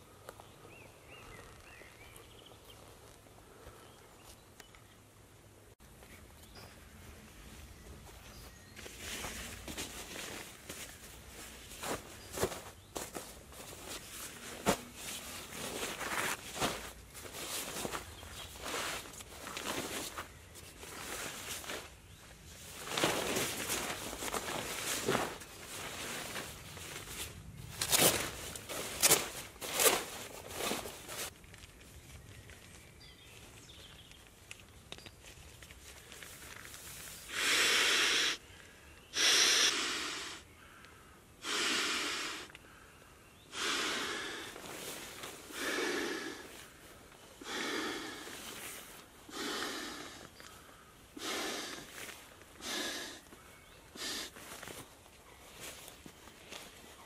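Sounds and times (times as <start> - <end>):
fabric rustling: 8.9 - 31.3
breath blown into valve: 37.3 - 38.4, 39.2 - 40.4.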